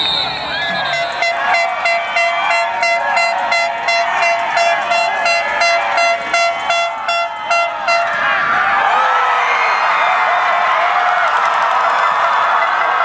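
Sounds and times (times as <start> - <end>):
horn tooting rapidly: 0.0 - 8.5
crowd shouting and cheering: 0.0 - 13.0.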